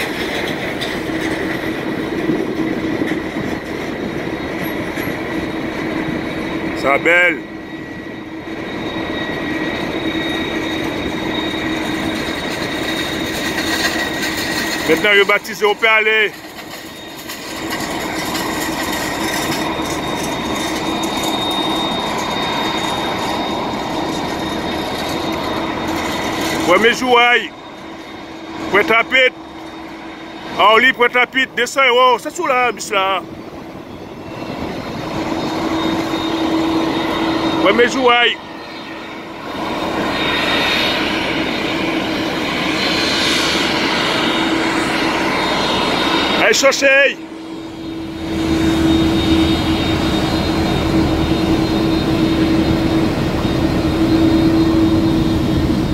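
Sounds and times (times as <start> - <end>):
jet engines running: 0.0 - 55.9
steady high tone: 1.0 - 42.7
metal carts rattling: 12.7 - 21.3.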